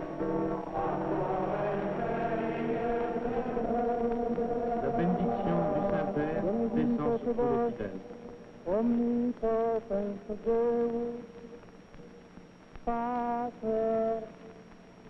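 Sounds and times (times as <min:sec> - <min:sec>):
voices singing a chant: 0:00.0 - 0:11.6.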